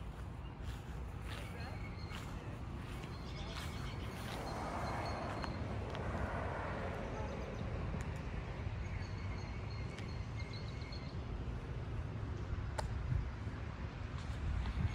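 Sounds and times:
small birds chirping: 0:00.0 - 0:05.8.

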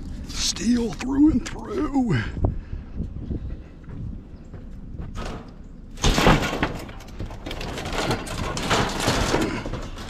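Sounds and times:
scrap steel clattering: 0:05.2 - 0:10.0
loud metal crash: 0:06.0 - 0:09.9.

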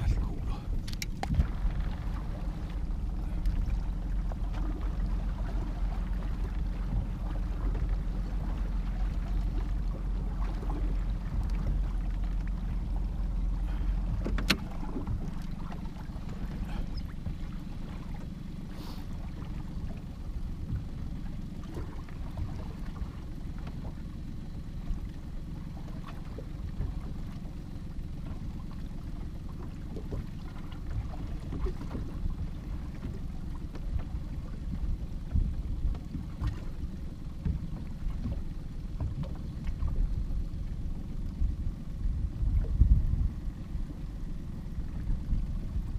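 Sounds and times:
low rumble: 0:00.0 - 0:45.9
water lapping against hull: 0:00.0 - 0:45.9
light clicks: 0:00.8 - 0:01.4.

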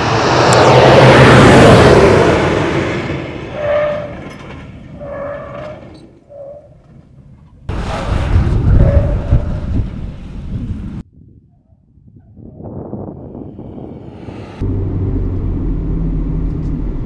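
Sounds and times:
road and wind noise: 0:00.0 - 0:17.0.

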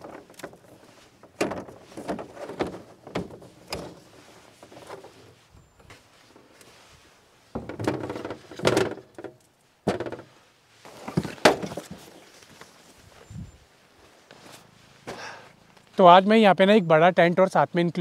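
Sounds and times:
metal camp table clattering: 0:00.0 - 0:06.7, 0:07.5 - 0:10.3, 0:10.9 - 0:12.7.

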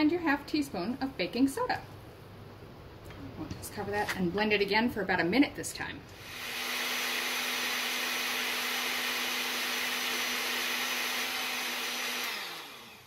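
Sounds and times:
blender motor running: 0:06.2 - 0:13.0.

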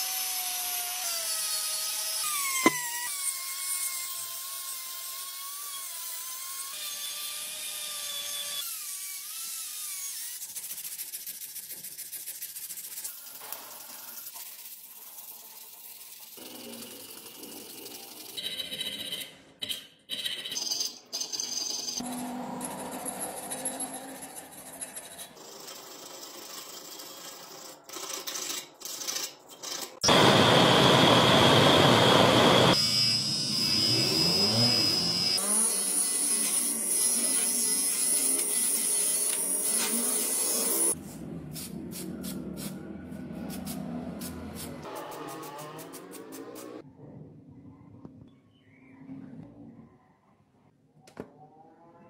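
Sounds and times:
sandpaper rubbing: 0:10.2 - 0:16.4, 0:36.2 - 0:41.2
buffing wheel high whine: 0:30.0 - 0:35.6
rotary tool grinding metal: 0:32.7 - 0:41.0.

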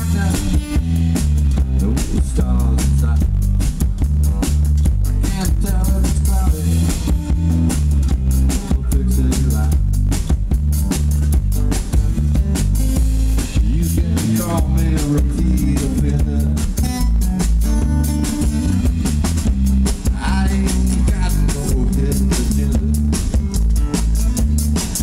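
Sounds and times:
bass line: 0:00.0 - 0:25.0
drum hits: 0:00.0 - 0:25.0
live blues band playing: 0:00.0 - 0:25.0.

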